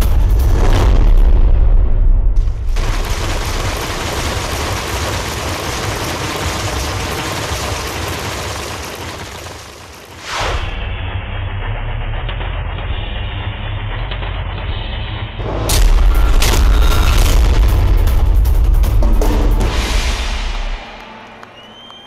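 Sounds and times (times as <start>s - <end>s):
bass-heavy music: 0.0s - 2.7s, 10.7s - 20.8s
dense crackling noise effect: 0.0s - 12.8s.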